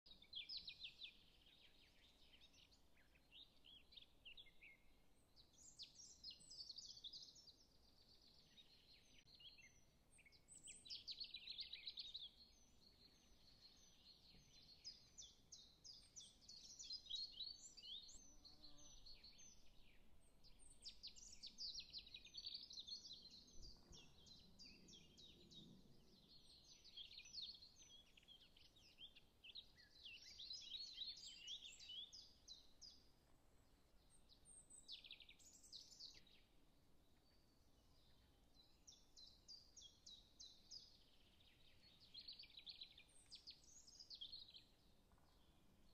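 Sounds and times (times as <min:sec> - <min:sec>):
small birds chirping: 0:00.0 - 0:45.9.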